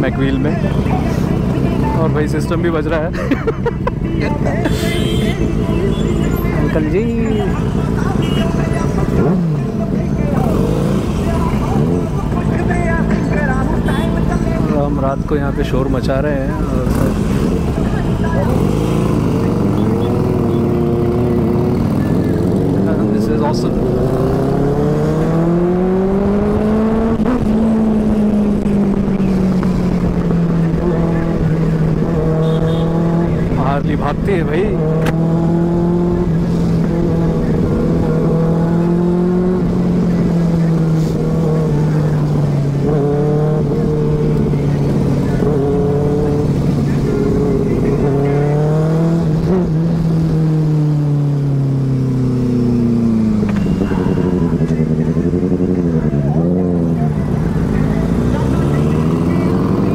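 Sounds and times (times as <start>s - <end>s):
motorcycle engine accelerating: 5.6s - 59.9s.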